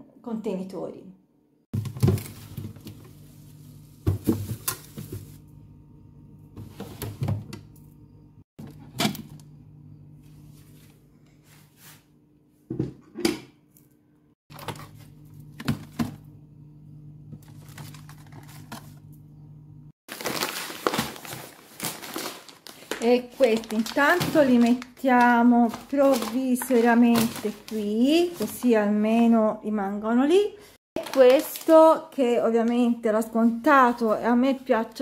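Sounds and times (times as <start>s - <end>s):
groceries and dishes clattering: 3.9s - 5.4s, 17.3s - 19.0s, 20.1s - 28.7s.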